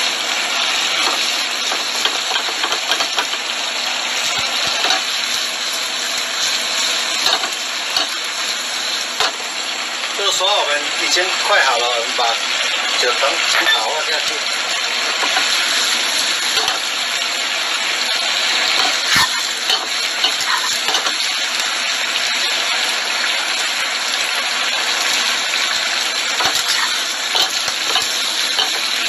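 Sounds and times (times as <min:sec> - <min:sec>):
food sizzling in a frying pan: 0:00.0 - 0:29.0
metal tongs clicking on pan: 0:07.2 - 0:08.2, 0:16.5 - 0:16.9, 0:18.7 - 0:21.2, 0:26.4 - 0:28.9.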